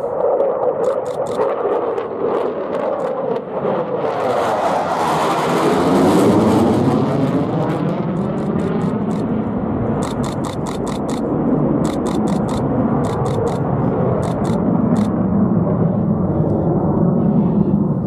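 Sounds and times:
jet engine roar in afterburner: 0.0 - 18.0
rapid high clicks: 0.8 - 1.5, 8.1 - 9.3, 10.0 - 15.1.

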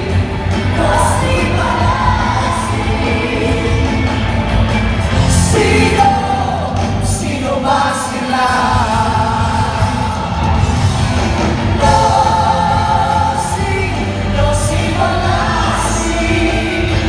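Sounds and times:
live pop music: 0.0 - 17.0
person singing: 5.3 - 10.6.

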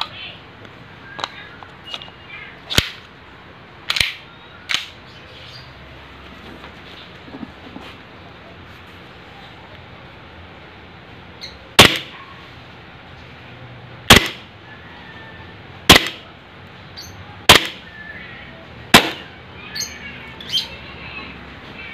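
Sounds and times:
toy pistol shots: 2.7 - 3.0, 3.9 - 5.0, 11.8 - 12.2, 14.1 - 14.5, 15.9 - 16.3, 17.5 - 17.9, 18.9 - 19.3.

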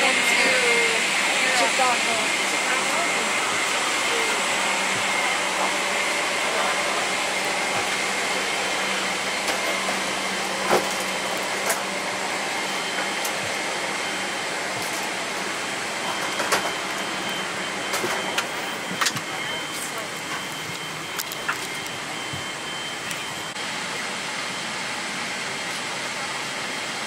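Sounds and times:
airliner cabin noise: 0.0 - 23.6.

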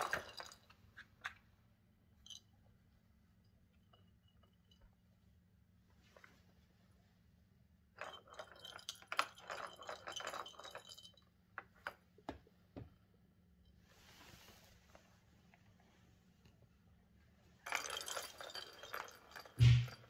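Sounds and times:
plastic ball rattling in track: 0.0 - 1.4, 8.0 - 12.0, 17.6 - 20.0
soft rustle: 13.7 - 16.8.

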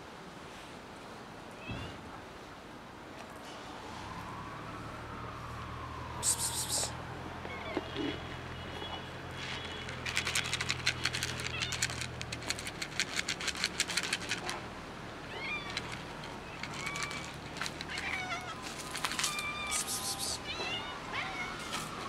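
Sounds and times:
cats meowing: 6.2 - 8.3, 9.4 - 12.2, 15.2 - 21.8
dry cat food rattling in container: 9.4 - 14.7, 15.6 - 20.4.

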